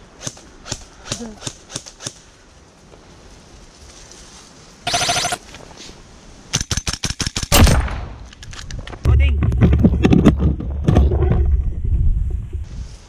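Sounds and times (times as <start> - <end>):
airsoft rifle shots: 4.9 - 5.5.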